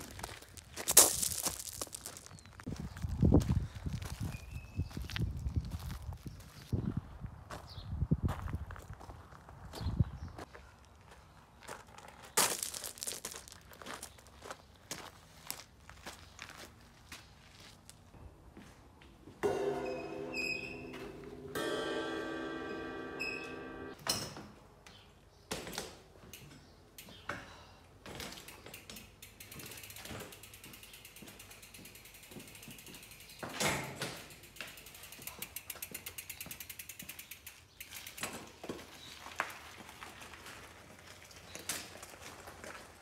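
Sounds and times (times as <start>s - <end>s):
bicycle freewheel hub ticking: 28.3s - 38.6s.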